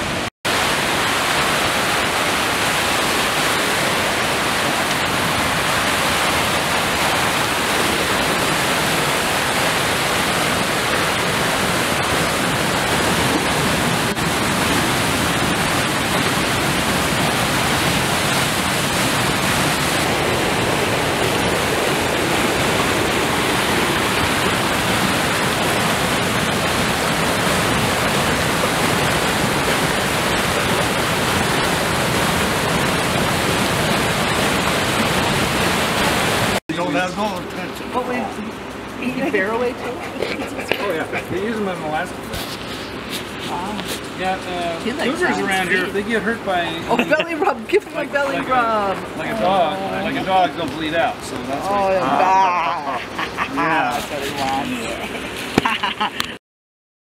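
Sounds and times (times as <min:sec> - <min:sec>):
river rapids rushing: 0:00.0 - 0:56.4
waterfall: 0:00.0 - 0:56.4.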